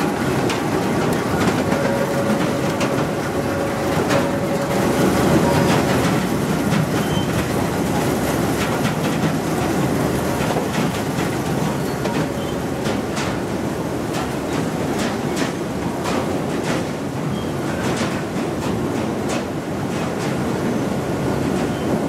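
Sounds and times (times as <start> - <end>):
wood striking steel rollers: 0.0 - 13.4
conveyor rollers rattling: 0.0 - 22.0.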